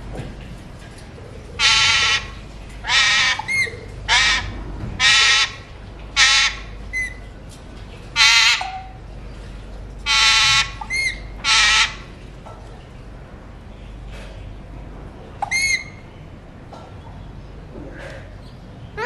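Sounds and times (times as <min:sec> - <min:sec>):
parakeets squawking: 0:01.6 - 0:05.6, 0:06.2 - 0:07.1, 0:08.2 - 0:09.0, 0:10.1 - 0:12.1.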